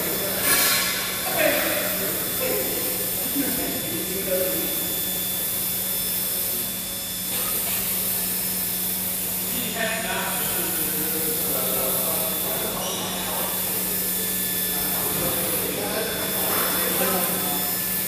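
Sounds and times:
machinery hiss and hum: 0.0s - 18.0s
faint voices: 9.4s - 17.9s.

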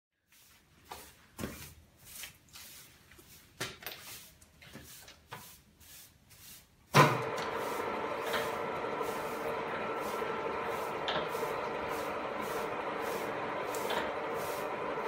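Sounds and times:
milling machine running: 7.0s - 15.0s.

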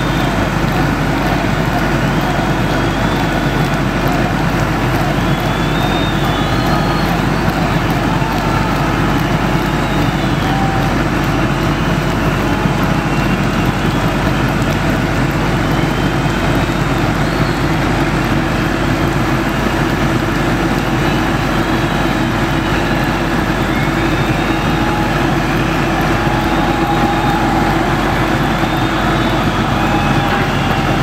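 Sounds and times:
diesel engine running: 0.0s - 31.0s
hydraulic whines: 0.0s - 31.0s.

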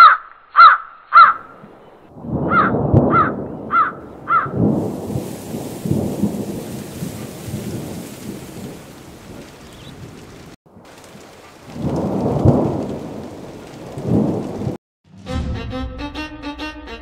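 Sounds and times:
crow cawing: 0.0s - 1.5s, 2.5s - 4.6s
low rumble of thunder: 2.1s - 14.8s
rain hissing: 4.0s - 14.8s.

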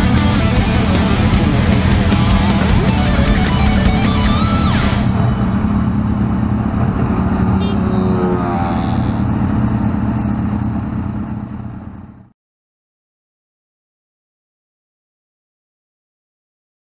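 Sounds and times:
motorcycle passing: 0.0s - 12.3s.

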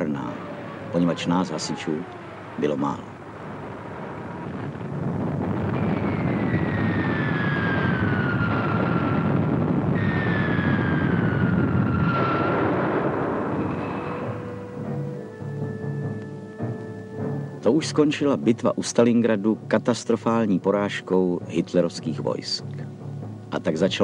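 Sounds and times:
explosions: 0.0s - 15.2s
aircraft rumble: 0.0s - 24.0s
falling bomb whistles: 4.1s - 17.6s.

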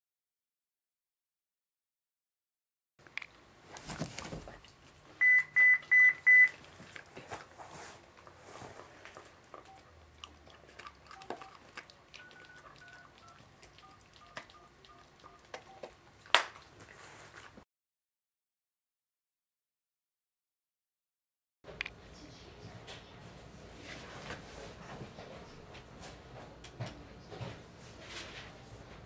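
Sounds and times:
keypad tones: 5.2s - 6.6s, 9.5s - 10.1s, 10.8s - 16.0s.

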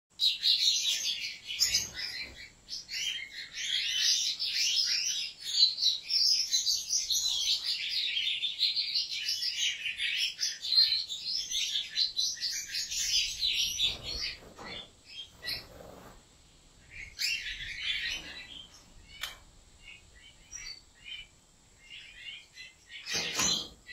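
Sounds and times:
goldfinch twittering song: 16.8s - 23.9s.

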